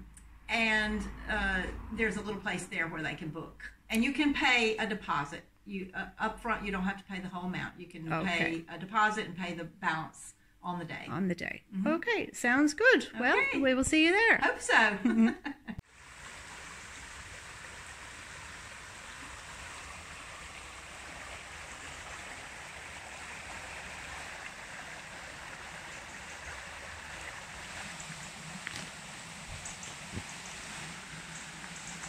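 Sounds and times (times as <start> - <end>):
river water running over stones: 15.9 - 32.0.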